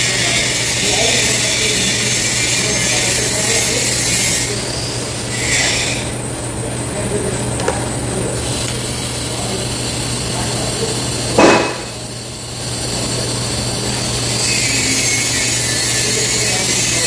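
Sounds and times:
welding arc hissing: 0.0 - 6.2, 8.3 - 17.0
welding arc crackle: 8.4 - 17.0.

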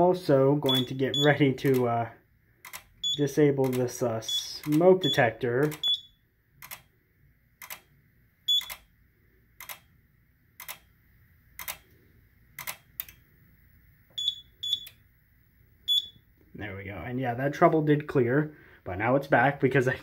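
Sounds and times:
keypad beeps: 0.7 - 1.4, 5.0 - 6.1, 8.5 - 8.8, 14.2 - 15.0, 15.9 - 16.2
sharp clicking: 1.6 - 1.9, 3.6 - 3.9, 4.6 - 4.9.

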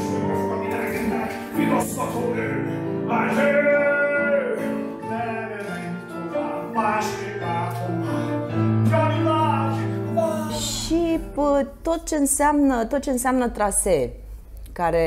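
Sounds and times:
person singing: 0.0 - 11.4
instrumental accompaniment: 0.0 - 12.2.

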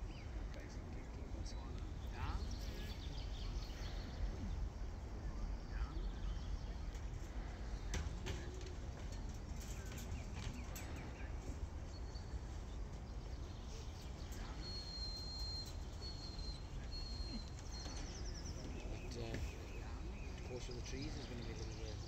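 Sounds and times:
faint high whistled tones: 13.8 - 20.0.

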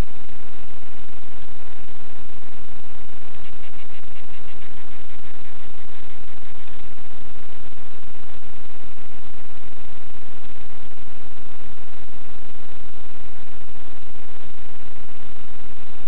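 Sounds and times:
faint electrical buzz: 0.0 - 16.0
microphone hiss and static: 0.0 - 16.0.

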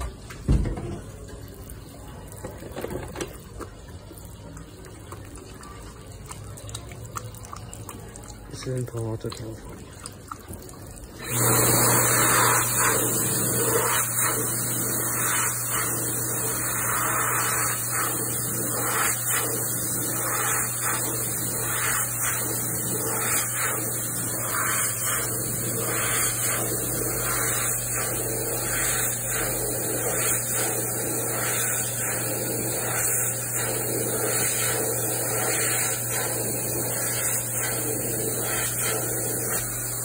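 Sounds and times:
hand dryer running: 11.1 - 40.0.

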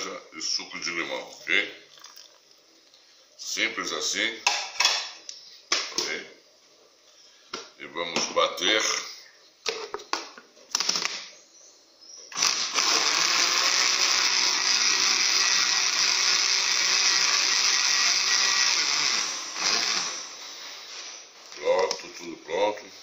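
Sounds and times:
blender running: 12.4 - 20.5.

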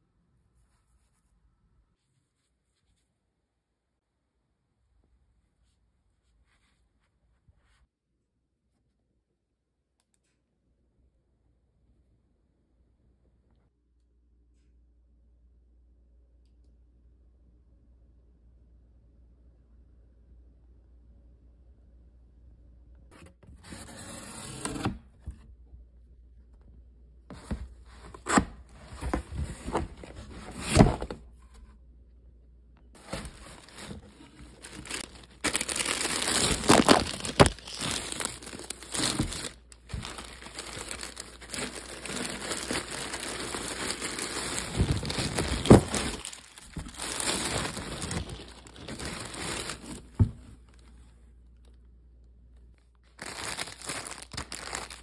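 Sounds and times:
tape and cardboard ripping: 33.0 - 49.8
packaging crinkling: 33.0 - 50.3, 53.1 - 55.0.

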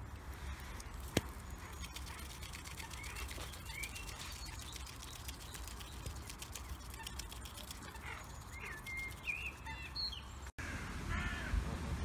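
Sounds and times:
goose bill clicking: 0.4 - 9.8
small bird chirping: 0.5 - 10.5.

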